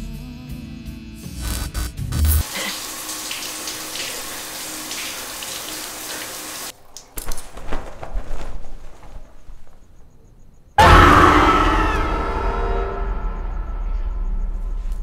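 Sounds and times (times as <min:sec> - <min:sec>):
water rushing: 0:02.5 - 0:06.7.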